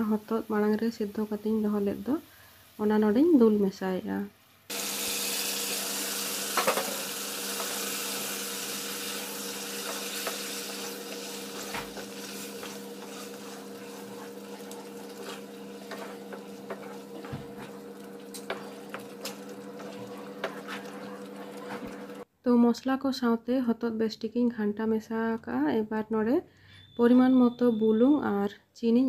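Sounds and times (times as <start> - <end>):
food sizzling in frying pan: 4.7 - 22.3
spatula scraping pan: 5.6 - 22.2.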